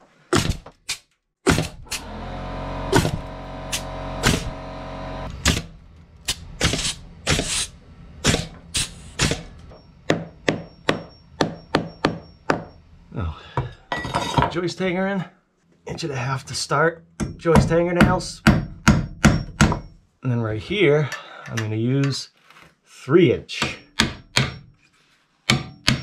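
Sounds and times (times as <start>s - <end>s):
hammer nailing into wood: 0.4s - 0.8s, 1.5s - 2.1s, 3.0s - 4.6s, 6.3s - 8.6s, 10.1s - 12.7s, 17.2s - 19.9s, 23.6s - 24.7s, 25.5s - 26.0s
steady hum: 1.7s - 13.4s.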